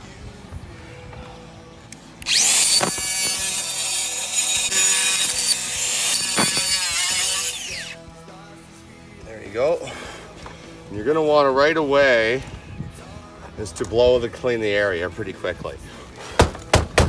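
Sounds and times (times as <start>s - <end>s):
circular saw cutting wood: 2.2s - 8.0s.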